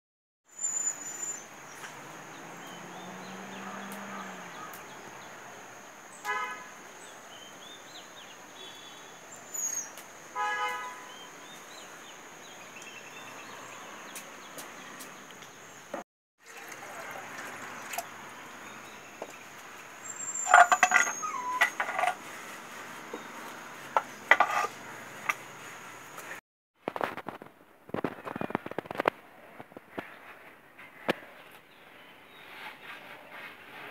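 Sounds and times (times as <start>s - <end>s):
vehicle horn toots: 6.2s - 6.8s, 10.4s - 11.1s.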